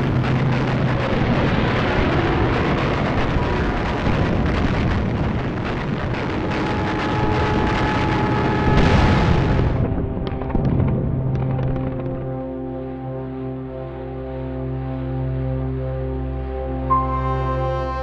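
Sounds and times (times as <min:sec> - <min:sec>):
explosions: 0:00.0 - 0:12.3
rapid anti-aircraft gunfire: 0:00.0 - 0:12.4
heavy rumble: 0:00.0 - 0:13.8.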